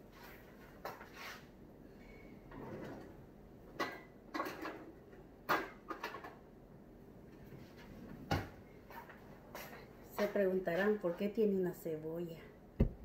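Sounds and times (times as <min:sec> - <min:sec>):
kitchen knocks and clicks: 0:03.8 - 0:06.4.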